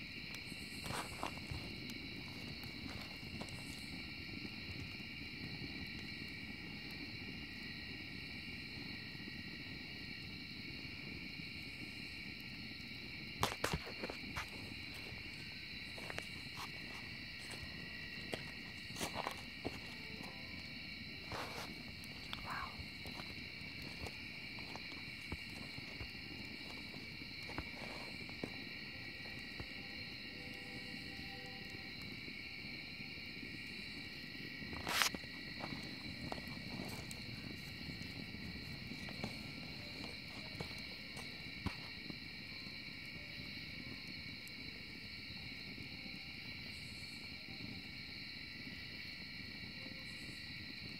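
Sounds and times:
fire popping: 0:00.0 - 0:45.5
wood fire crackling: 0:00.0 - 0:47.3
crickets chirping: 0:00.0 - 0:50.9
night insects chorus: 0:00.0 - 0:50.9.

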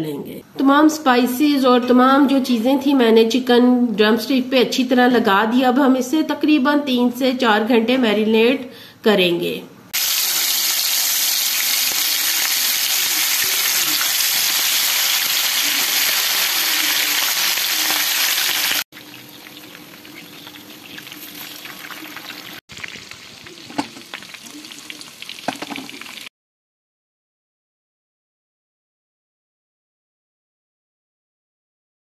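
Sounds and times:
chicken sizzling in hot oil: 0:10.0 - 0:26.3
oil popping and crackling: 0:10.0 - 0:26.3.

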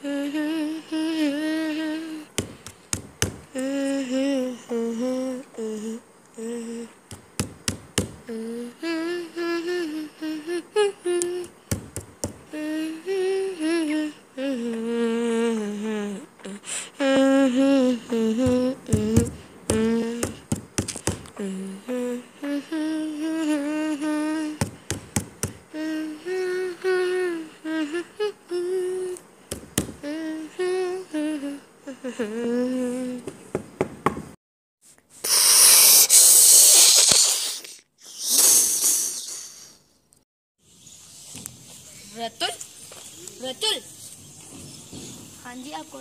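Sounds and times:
person humming a slow melody: 0:00.0 - 0:07.2, 0:08.0 - 0:11.8, 0:12.4 - 0:33.3.

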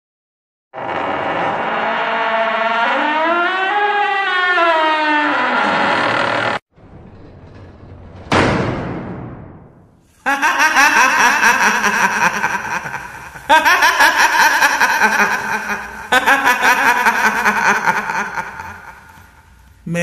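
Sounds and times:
loud bang: 0:06.8 - 0:10.0
woman cackling laugh: 0:10.3 - 0:19.3.

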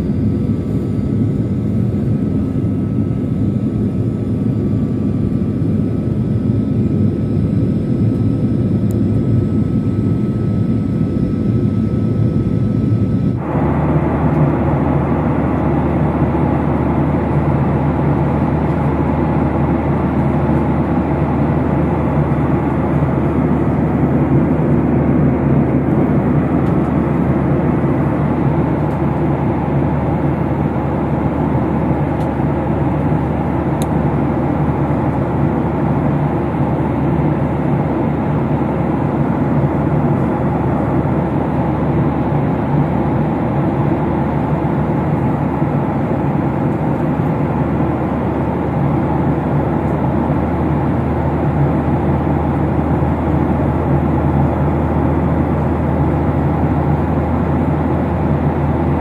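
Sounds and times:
airliner cabin engine noise: 0:00.0 - 0:59.0.

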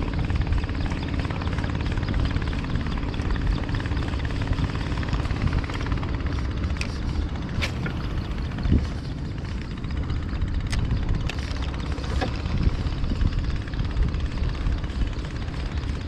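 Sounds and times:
boat engine rumbling: 0:00.0 - 0:16.0.

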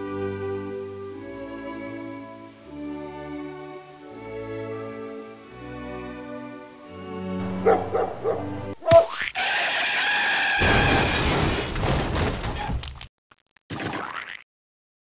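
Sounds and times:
slow sad string music: 0:00.0 - 0:08.8.

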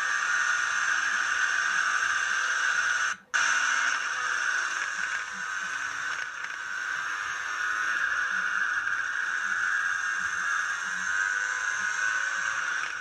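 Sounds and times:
go-kart engine at high revs: 0:00.0 - 0:13.0.

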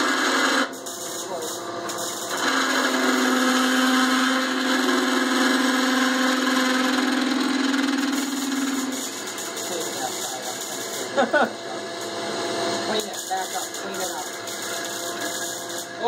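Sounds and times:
machine running noise: 0:00.0 - 0:16.0
metal lathe drilling: 0:00.0 - 0:16.0.

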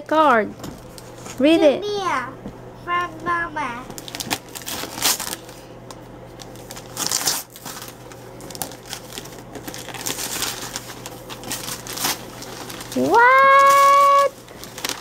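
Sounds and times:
wrapping paper crinkling: 0:03.9 - 0:15.0.

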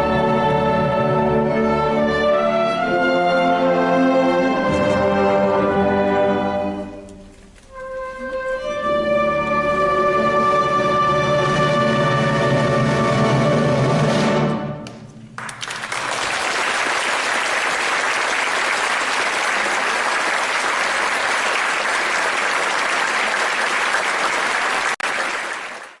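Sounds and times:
audience applause: 0:15.4 - 0:26.0.

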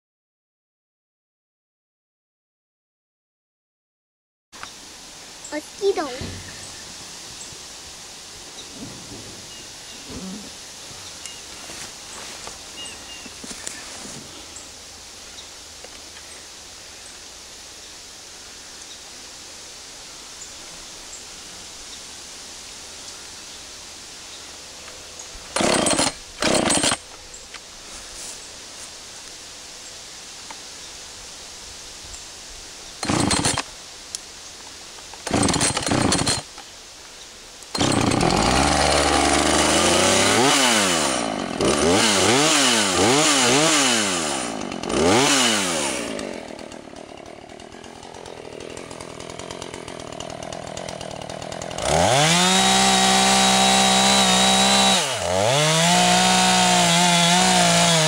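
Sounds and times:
chainsaw cutting log: 0:05.5 - 0:06.8, 0:25.4 - 0:27.1, 0:33.0 - 0:33.7, 0:35.2 - 0:36.6, 0:37.6 - 0:58.0
chainsaw engine revving: 0:05.5 - 0:06.8, 0:25.5 - 0:27.0, 0:33.0 - 0:33.7, 0:35.2 - 0:36.5, 0:37.7 - 0:58.0
chainsaw starter cord pulls: 0:25.5 - 0:27.0, 0:33.0 - 0:33.7, 0:35.2 - 0:36.5, 0:37.7 - 0:58.0.

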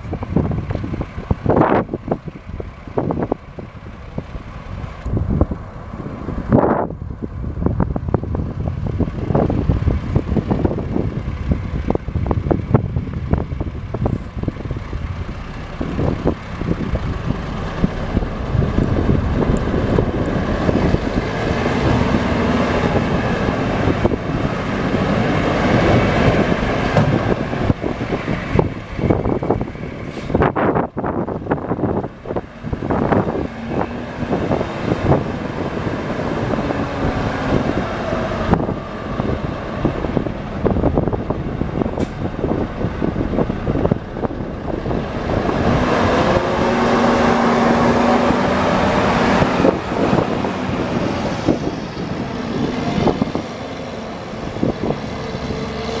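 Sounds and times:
diesel truck engine running: 0:00.0 - 0:56.0
wind buffeting microphone: 0:00.0 - 0:56.0.

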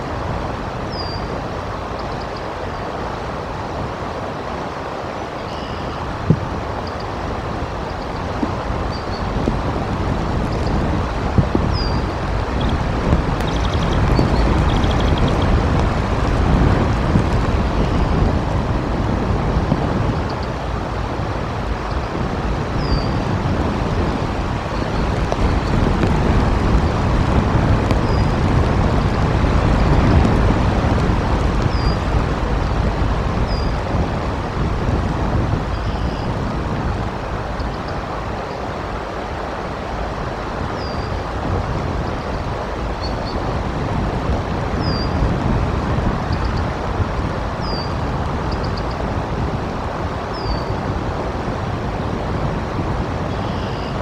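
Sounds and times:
wind gusting: 0:00.0 - 0:54.0
faint high bird chirps: 0:00.9 - 0:01.3, 0:05.4 - 0:06.1, 0:53.3 - 0:54.0.

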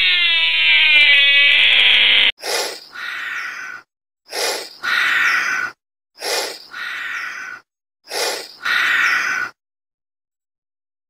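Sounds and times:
chameleon hissing: 0:02.4 - 0:03.1, 0:04.3 - 0:05.4, 0:06.2 - 0:07.0, 0:08.1 - 0:09.4.

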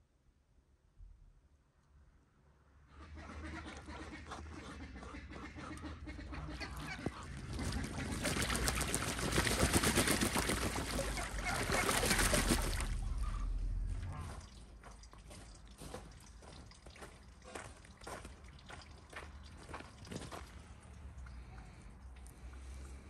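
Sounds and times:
duck wings beating: 0:06.0 - 0:13.5
water splashing in metal tub: 0:07.4 - 0:20.2.

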